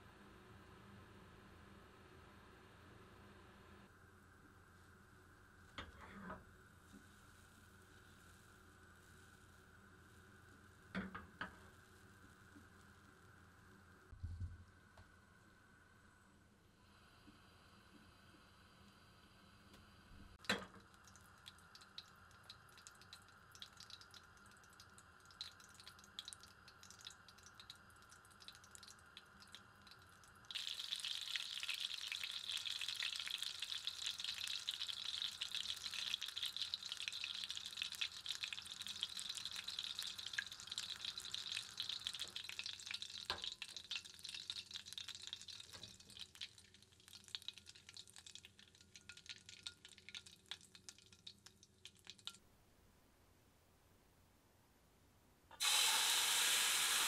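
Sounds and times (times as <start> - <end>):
butter sizzling and crackling: 20.4 - 52.3, 55.6 - 57.0.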